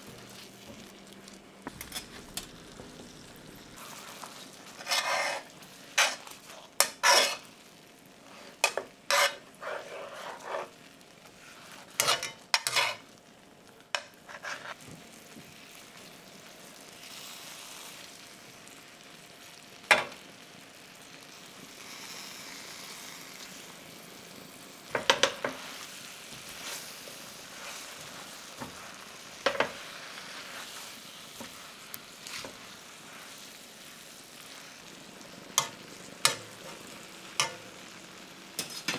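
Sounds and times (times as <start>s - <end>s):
cream sauce sizzling in a pan: 0.0s - 38.9s
tongs and spatula scraping pan: 1.7s - 2.5s, 3.8s - 7.5s, 8.3s - 13.1s, 13.9s - 14.8s, 24.9s - 33.5s, 35.6s - 37.7s, 38.6s - 38.9s.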